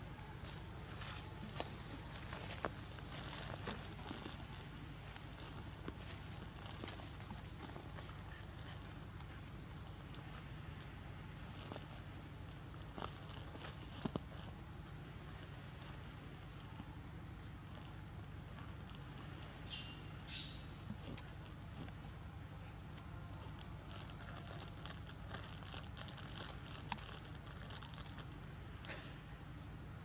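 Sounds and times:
insects chirring: 0:00.0 - 0:30.0
faint rustles and clicks: 0:22.9 - 0:29.1.

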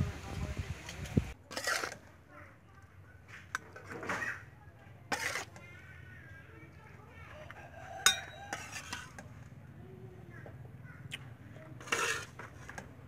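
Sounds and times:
spatula scraping metal wok: 0:01.3 - 0:02.3, 0:03.2 - 0:06.3, 0:07.5 - 0:09.5, 0:11.7 - 0:13.0
sharp ringing clink: 0:08.0 - 0:08.6.

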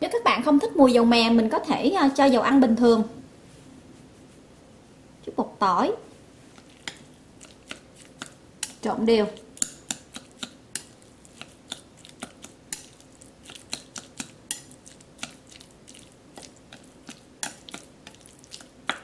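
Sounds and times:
chopsticks tapping a ceramic bowl: 0:09.6 - 0:15.4.

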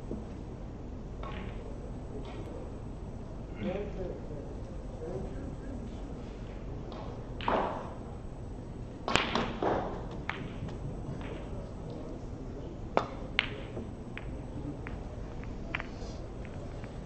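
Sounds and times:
snooker balls clicking: 0:01.2 - 0:02.6, 0:06.9 - 0:08.0, 0:09.0 - 0:12.1, 0:13.0 - 0:17.0.

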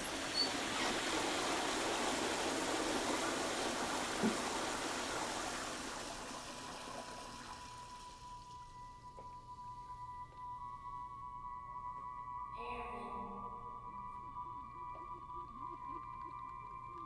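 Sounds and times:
water rushing through plumbing: 0:00.0 - 0:09.8
steady high tone: 0:08.8 - 0:17.0.

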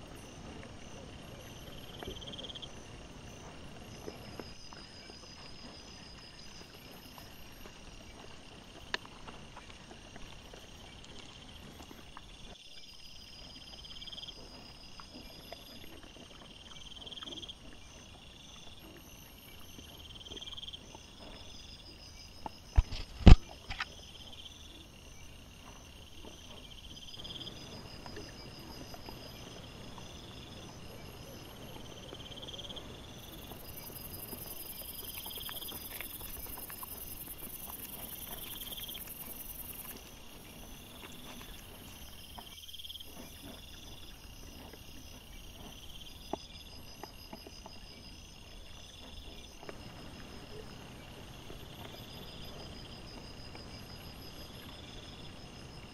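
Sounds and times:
insects chirping: 0:00.0 - 0:55.9.

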